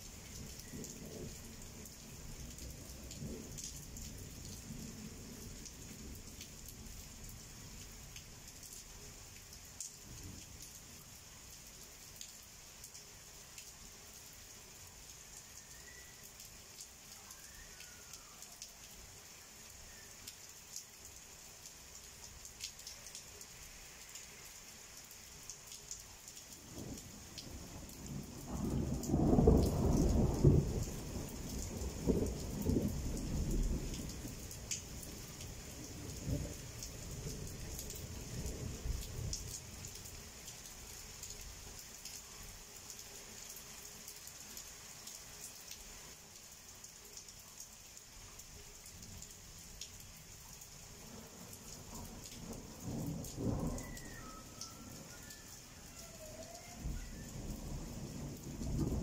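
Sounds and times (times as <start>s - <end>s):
steady rain falling: 0.0s - 59.0s
raindrop ticks: 28.4s - 40.6s, 51.5s - 59.0s
thunder rolling: 52.8s - 59.0s.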